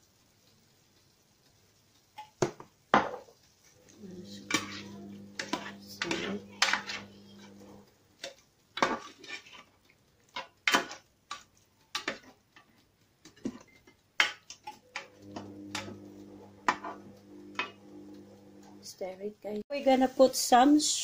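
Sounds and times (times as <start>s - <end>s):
steady low hum: 3.8s - 7.9s, 14.9s - 18.9s
utensil scraping a pan: 4.2s - 12.4s, 14.7s - 18.0s.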